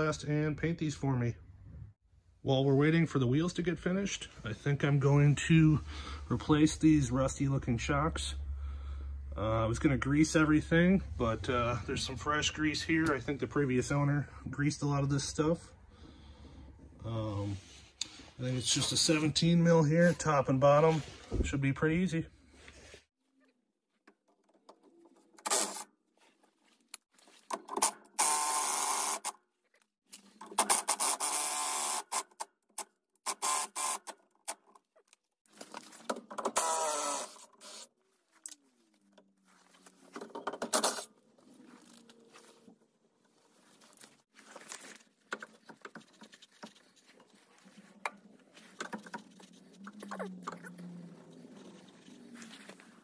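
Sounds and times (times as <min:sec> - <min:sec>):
impact wrench bursts: 0:27.8 - 0:29.3, 0:30.6 - 0:32.3, 0:33.3 - 0:34.1, 0:36.5 - 0:37.9
tool and metal clicks and knocks: 0:40.2 - 0:41.1.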